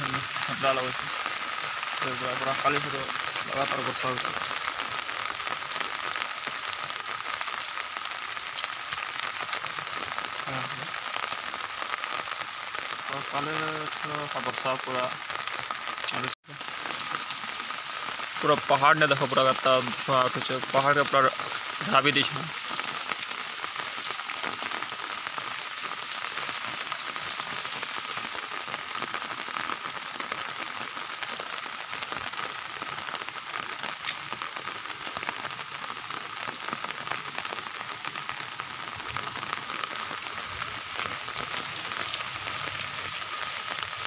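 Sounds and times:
rain on concrete rooftop: 0:00.0 - 0:44.0.

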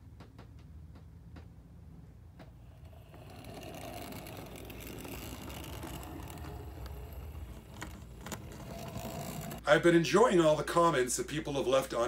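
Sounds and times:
model train whirring rumble: 0:02.6 - 0:09.6.

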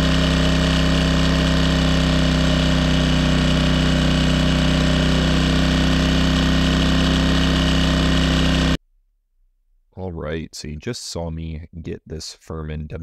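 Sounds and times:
generator engine running: 0:00.0 - 0:08.8.

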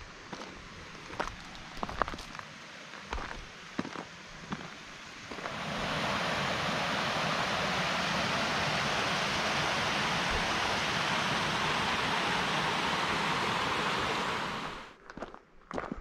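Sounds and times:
fast-flowing mountain water: 0:05.3 - 0:14.9.

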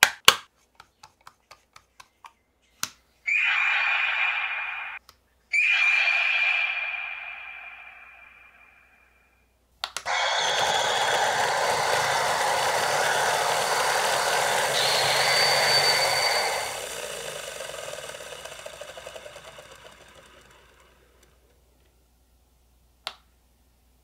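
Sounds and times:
rushing whirring sound effect: 0:03.3 - 0:05.0, 0:05.6 - 0:08.9, 0:10.1 - 0:21.3
high whine: 0:03.3 - 0:09.0, 0:10.1 - 0:20.8
toy click: 0:09.8 - 0:21.3.

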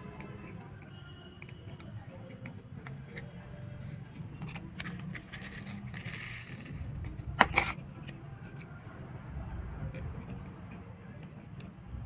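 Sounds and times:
plastic toy scraping: 0:02.3 - 0:08.7.

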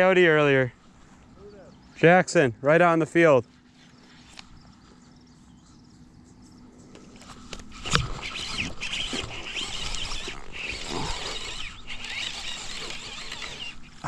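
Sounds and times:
small birds chirping: 0:00.0 - 0:14.0
rod and reel handling rustle: 0:03.4 - 0:05.4, 0:06.4 - 0:14.0.

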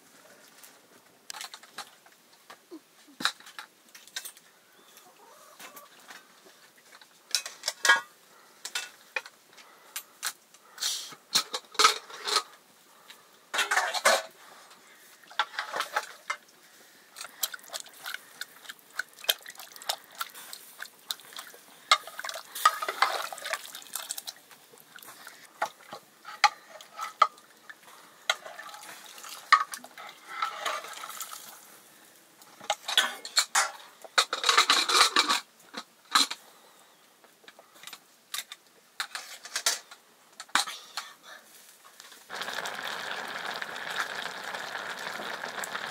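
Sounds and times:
cookware and utensils clattering: 0:07.3 - 0:09.4, 0:11.4 - 0:12.6, 0:13.5 - 0:14.4, 0:15.4 - 0:16.5, 0:21.9 - 0:23.6, 0:25.6 - 0:27.4, 0:28.3 - 0:31.2, 0:32.6 - 0:36.4, 0:37.8 - 0:40.7.

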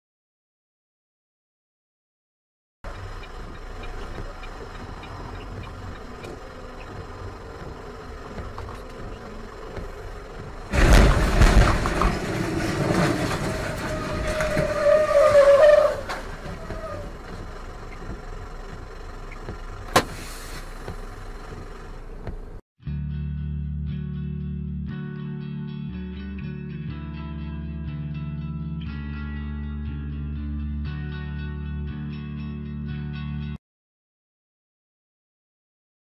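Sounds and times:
truck cab road noise: 0:02.8 - 0:22.6
truck crash crunching and scraping: 0:07.4 - 0:22.0.

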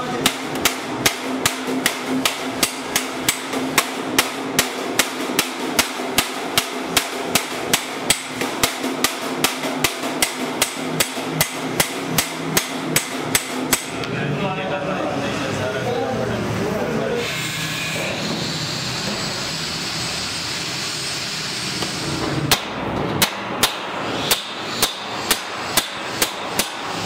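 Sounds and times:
hammer striking metal tray: 0:00.2 - 0:14.0, 0:22.5 - 0:27.0.

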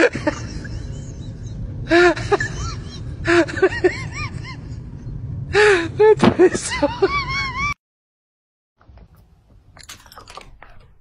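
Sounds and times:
low background rumble: 0:00.0 - 0:07.8.

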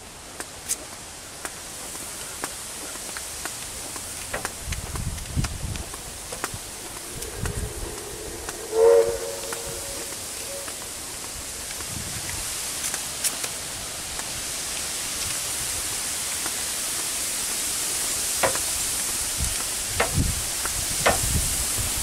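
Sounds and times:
wind hiss: 0:00.0 - 0:22.0
loud honking tone: 0:07.0 - 0:10.7.

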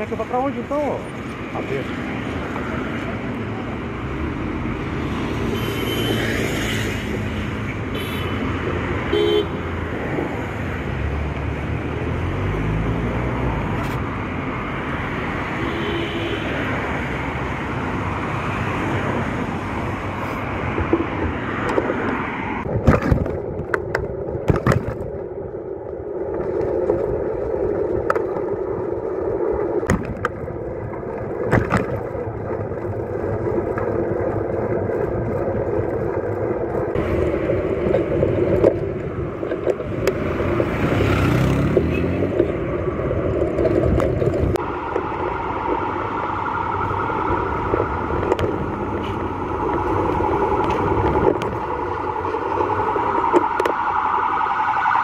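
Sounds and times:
bicycle riding hum: 0:00.0 - 0:55.0
city street traffic: 0:00.0 - 0:55.0
bicycle rattling over bumps: 0:20.5 - 0:53.6.

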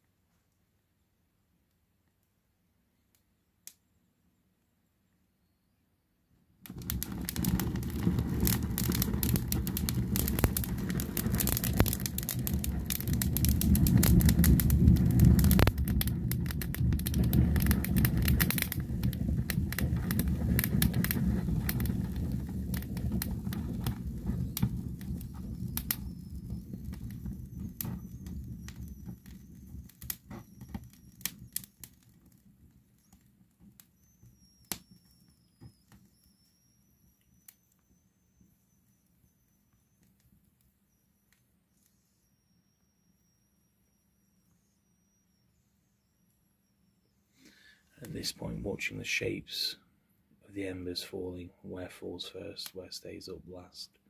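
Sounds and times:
low rush of flame: 0:06.6 - 0:33.2, 0:47.4 - 0:49.8
burning branches crackling and popping: 0:06.6 - 0:40.7, 0:47.4 - 0:49.8, 0:51.8 - 0:53.7
faint high wavering whistle: 0:24.2 - 0:31.8, 0:32.9 - 0:49.4.

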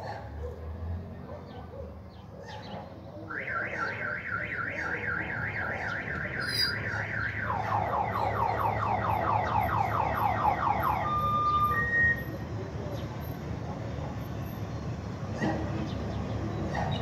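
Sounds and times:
car alarm siren: 0:03.3 - 0:12.4.

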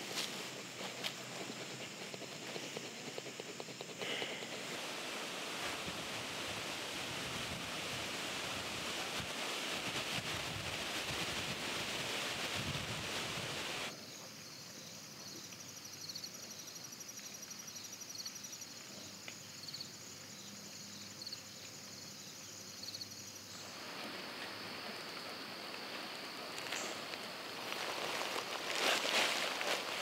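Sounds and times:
insects trilling: 0:00.0 - 0:06.9, 0:13.9 - 0:30.0
broad hiss: 0:00.0 - 0:13.9, 0:23.4 - 0:30.0.

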